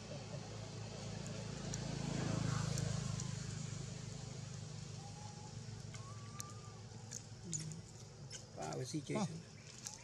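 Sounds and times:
low engine-like hum: 0:00.0 - 0:10.0
thin whistle-like calls: 0:04.9 - 0:07.0.

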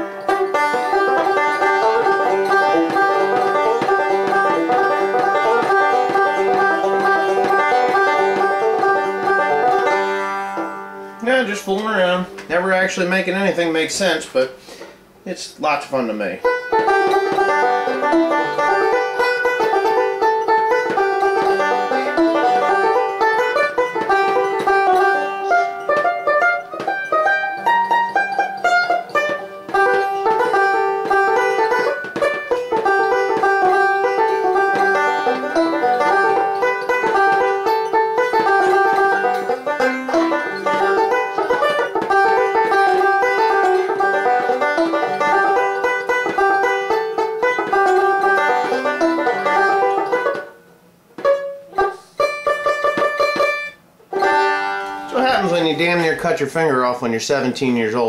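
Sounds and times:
banjo picking: 0:00.0 - 0:58.0.

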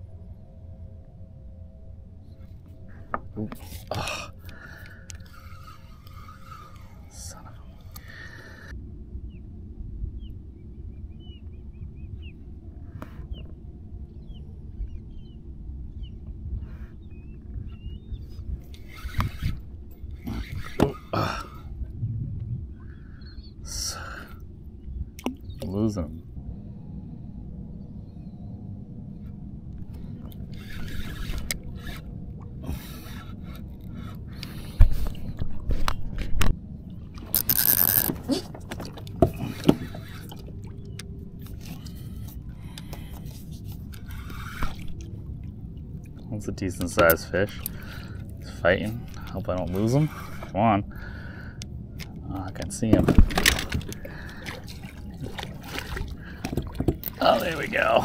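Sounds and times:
steady low rumble: 0:00.0 - 0:58.0
high bending bird chirps: 0:10.2 - 0:12.4, 0:22.7 - 0:23.7
fishing reel cranking: 0:18.7 - 0:21.4, 0:30.3 - 0:34.7, 0:37.2 - 0:38.3.

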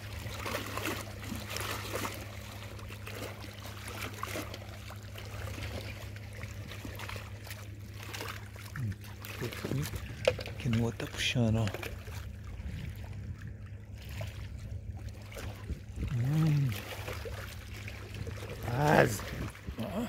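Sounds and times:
river water lapping and splashing: 0:00.0 - 0:20.0
steady low hum: 0:00.0 - 0:20.0.

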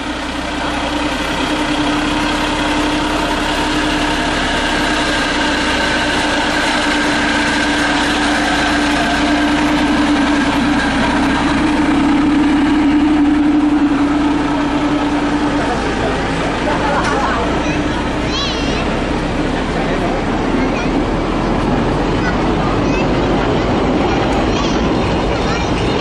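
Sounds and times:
diesel locomotive engine drone: 0:00.0 - 0:26.0.

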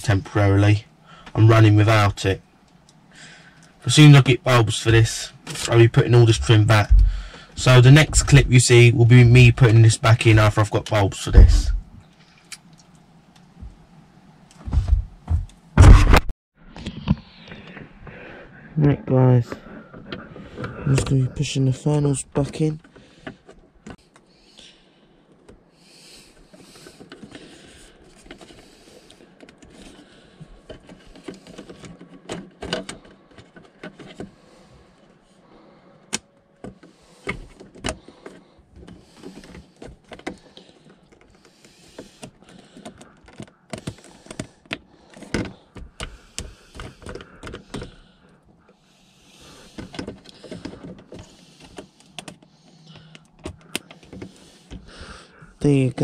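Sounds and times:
plastic trim rustling: 0:36.6 - 0:48.2.

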